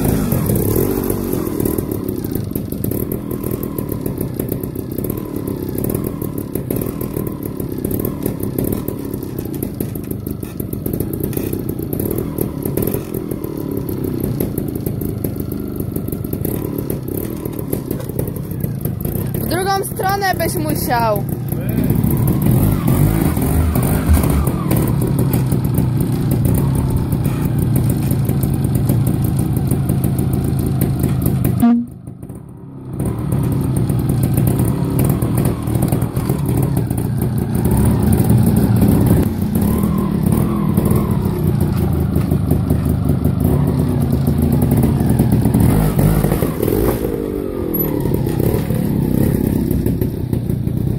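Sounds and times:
motorcycle engine throttle blips: 0.0 - 32.4.

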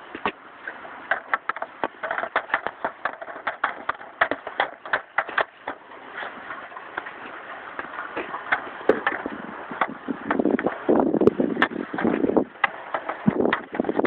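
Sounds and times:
hockey stick tapping puck: 1.1 - 5.8, 7.8 - 10.8, 11.6 - 14.0.

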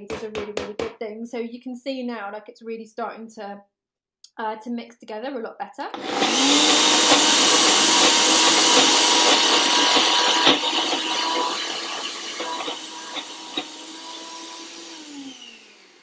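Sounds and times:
blender grinding: 5.9 - 16.0.

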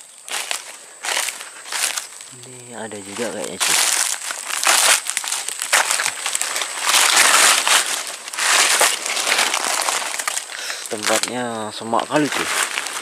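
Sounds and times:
leaves and twigs rustling and crackling: 0.0 - 13.0.

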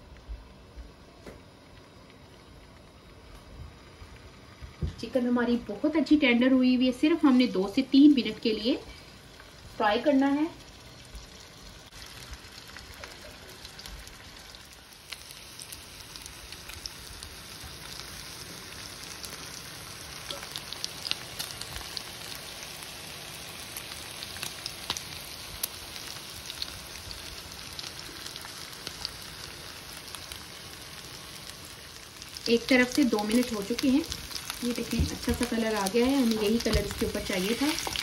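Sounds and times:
chicken sizzling in frying pan: 1.6 - 38.0.

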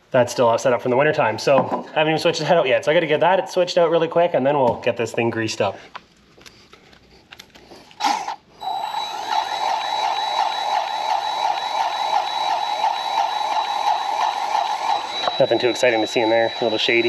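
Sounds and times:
thin high whine: 8.6 - 17.0.

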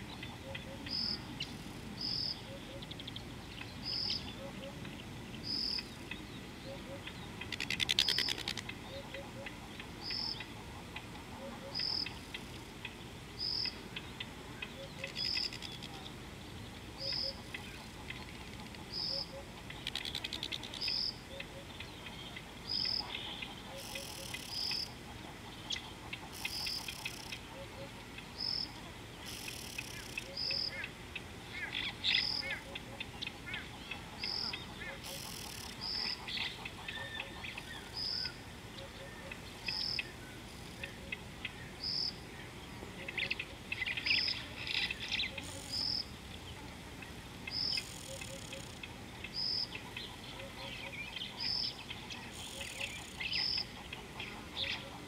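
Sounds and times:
buzzy insect-like trills: 6.9 - 16.2, 16.8 - 21.3, 21.9 - 38.4, 43.1 - 50.3, 51.1 - 55.0.

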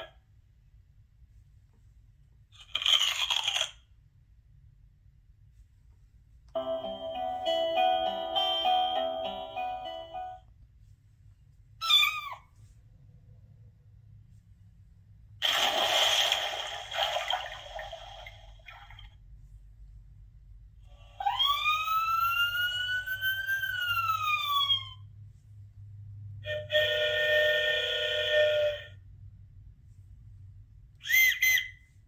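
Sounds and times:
electronic vehicle horn: 26.5 - 28.8.

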